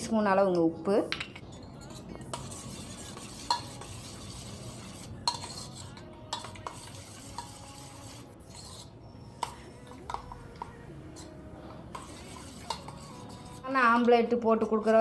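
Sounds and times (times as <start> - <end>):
spoon clinking on bowl: 0.5 - 4.0, 5.2 - 7.7, 8.6 - 14.1
spoon beating eggs in bowl: 1.5 - 15.0.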